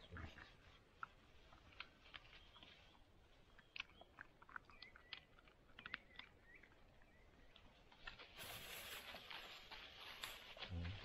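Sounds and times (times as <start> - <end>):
dog crunching and chewing: 3.5 - 6.8.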